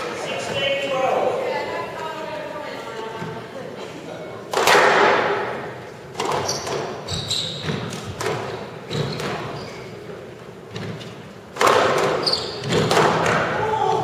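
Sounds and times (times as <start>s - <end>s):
squash ball cracking off rackets: 4.5s - 9.6s, 10.7s - 13.6s
court shoes squeaking: 5.4s - 14.0s.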